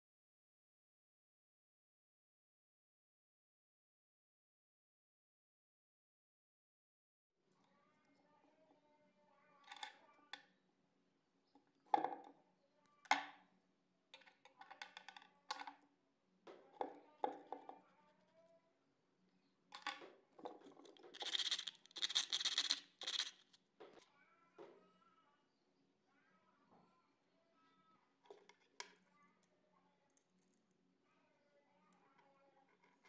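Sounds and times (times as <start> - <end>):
small parts clicking and tapping: 9.6 - 10.5, 14.2 - 15.8, 19.7 - 23.6, 28.2 - 29.5, 30.1 - 30.8
scraping and rustling: 19.9 - 24.0.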